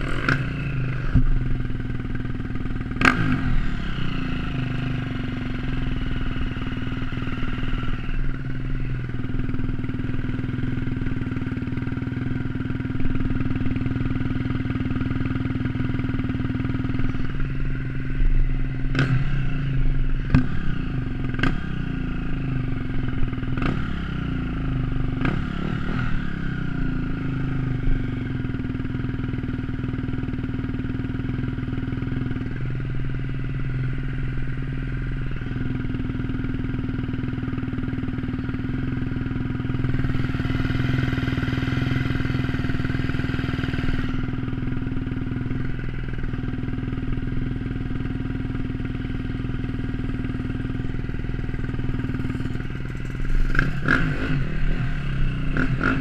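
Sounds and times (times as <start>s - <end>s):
dirt bike engine idling: 0.0s - 56.0s
dirt bike revving past: 51.6s - 56.0s.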